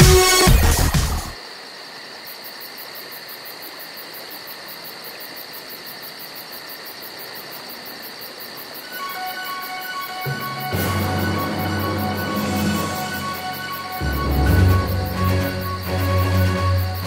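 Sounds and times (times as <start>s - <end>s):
electronic music: 0.0s - 1.4s, 9.0s - 17.0s
insects droning with fast pulsing: 1.3s - 17.0s.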